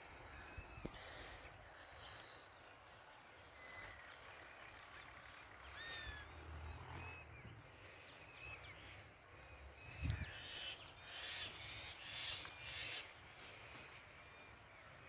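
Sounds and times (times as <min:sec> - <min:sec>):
birds chirping: 0:00.0 - 0:15.0
harsh rasping bird calls: 0:05.2 - 0:15.0.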